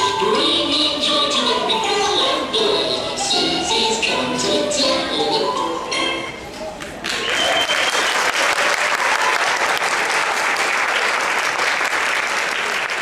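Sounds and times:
audience applause: 0:06.8 - 0:13.0.

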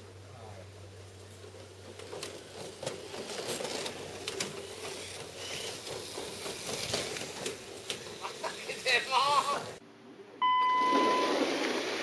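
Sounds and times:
toy car motors whirring: 0:02.0 - 0:09.7.

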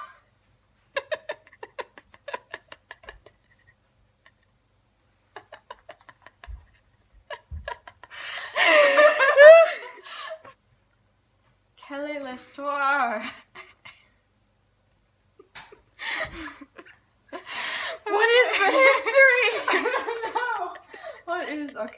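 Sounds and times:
women giggling and laughing: 0:00.9 - 0:04.6, 0:05.3 - 0:10.4, 0:15.4 - 0:17.5, 0:18.3 - 0:21.9.

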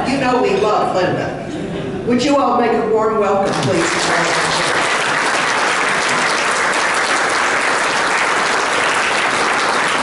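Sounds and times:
crowd applauding: 0:03.5 - 0:10.0.

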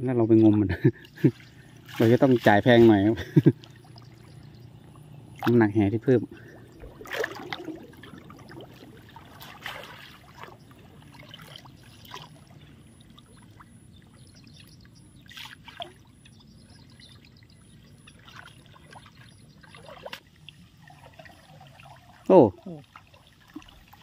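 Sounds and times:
water splashing and dripping: 0:00.3 - 0:24.0
sharper splashes: 0:01.3 - 0:04.0, 0:06.9 - 0:12.3.

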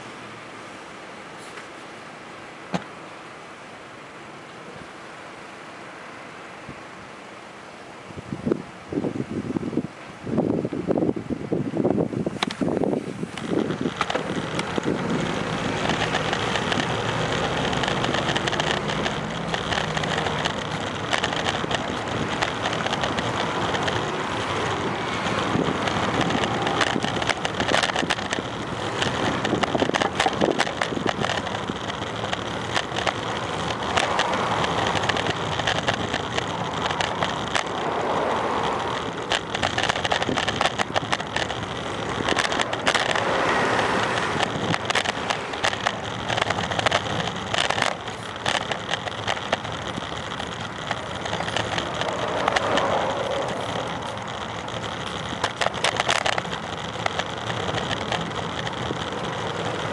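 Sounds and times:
road traffic: 0:00.0 - 0:59.9
bicycle rolling on pavement: 0:09.8 - 0:59.9
bicycle rattling over bumps: 0:12.2 - 0:59.9.

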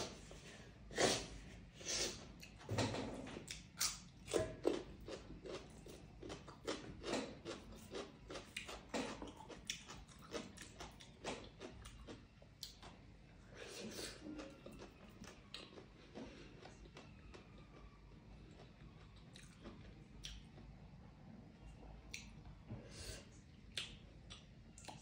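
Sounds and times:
chewing and lip-smacking: 0:03.4 - 0:13.0, 0:14.2 - 0:20.8, 0:21.6 - 0:22.5, 0:23.6 - 0:25.0.

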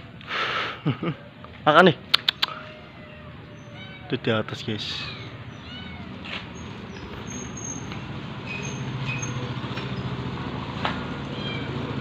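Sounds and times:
sharp click: 0:02.1 - 0:02.6
vehicle engine rumbling: 0:04.4 - 0:12.0.

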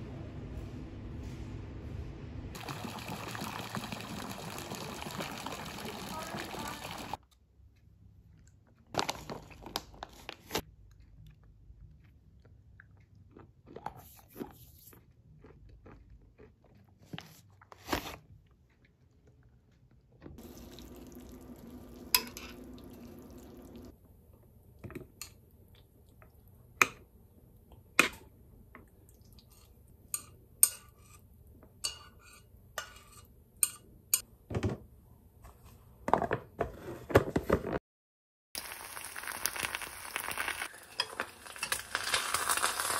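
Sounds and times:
spaghetti sizzling in frying pan: 0:20.4 - 0:23.9, 0:38.6 - 0:42.9
metal chopsticks stirring: 0:40.8 - 0:42.2.

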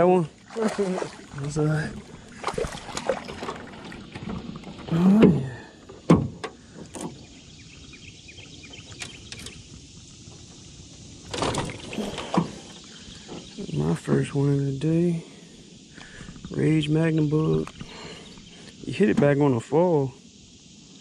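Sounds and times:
knocks in a small boat: 0:02.4 - 0:07.2
person exclaiming: 0:04.9 - 0:05.6.

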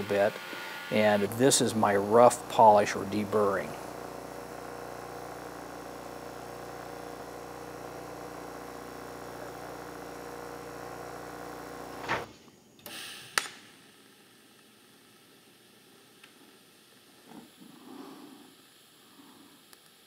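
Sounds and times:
bench grinder motor hum: 0:00.0 - 0:12.1
short hiss: 0:12.0 - 0:13.9
sharp click: 0:12.8 - 0:13.7.

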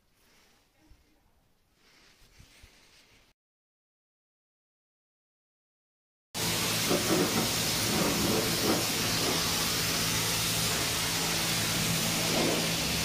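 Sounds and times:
steady hiss: 0:06.4 - 0:13.0
spray bottle squirting: 0:06.7 - 0:13.0.

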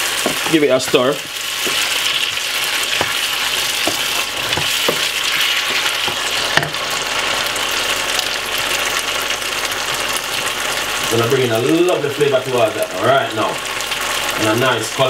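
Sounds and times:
wooden spoon knocking pan: 0:00.0 - 0:06.8
vegetables sizzling in a pan: 0:00.0 - 0:15.0.

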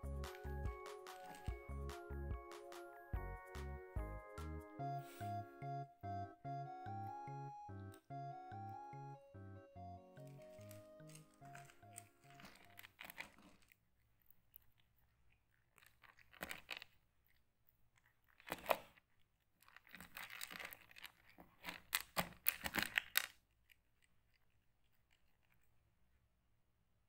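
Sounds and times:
cat crunching dry kibble: 0:10.2 - 0:26.2.

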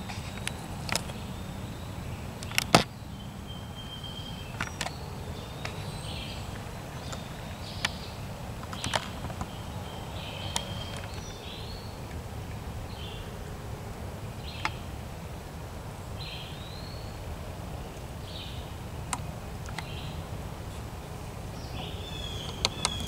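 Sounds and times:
short high bird calls: 0:21.6 - 0:23.0.

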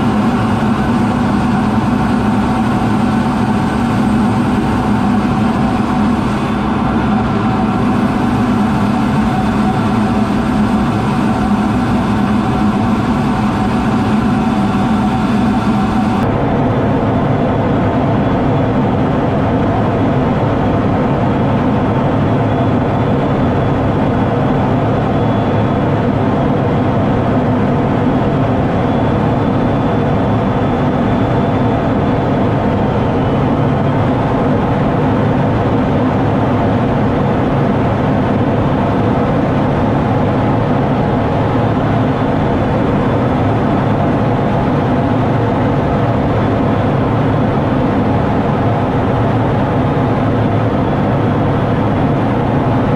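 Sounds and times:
faint high whine: 0:00.0 - 0:16.4
jet engine and rushing air: 0:00.0 - 0:52.9.

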